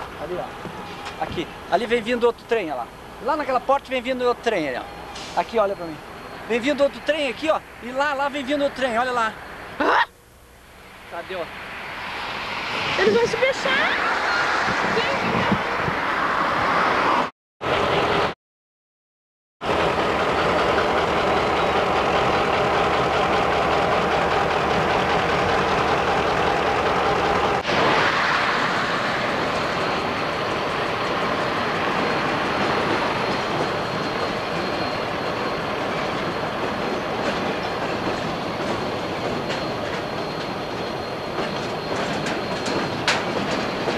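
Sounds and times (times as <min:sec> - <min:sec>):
freight train rumbling: 0:00.0 - 0:09.8, 0:19.6 - 0:43.9
diesel locomotive engine running: 0:00.0 - 0:14.8, 0:17.6 - 0:18.3, 0:19.6 - 0:43.9
wheels clicking over rail joints: 0:30.5 - 0:43.9.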